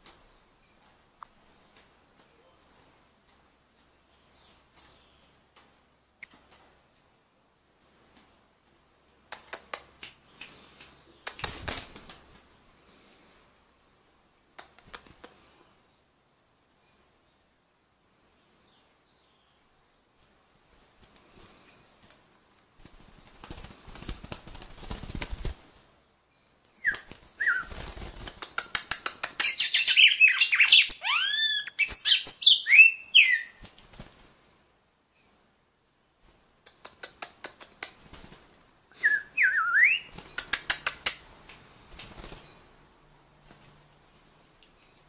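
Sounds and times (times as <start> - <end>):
wings fluttering: 9.3 - 12.8, 20.6 - 25.9, 26.8 - 32.0, 33.1 - 34.5, 36.2 - 42.7, 43.4 - 44.3
bird whistled song: 26.8 - 27.7, 29.4 - 33.6, 38.9 - 40.1
bird clicking chips: 28.3 - 30.6, 40.2 - 41.2.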